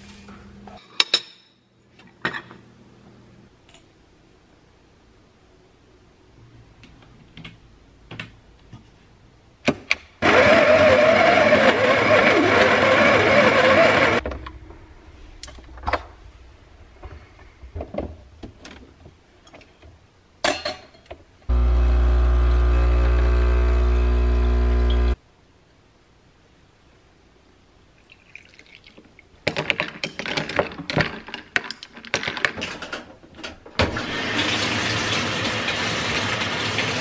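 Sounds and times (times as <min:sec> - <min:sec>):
coffee grinder grinding beans: 0:10.2 - 0:14.2, 0:21.5 - 0:25.2
espresso machine pump buzzing: 0:21.5 - 0:25.2.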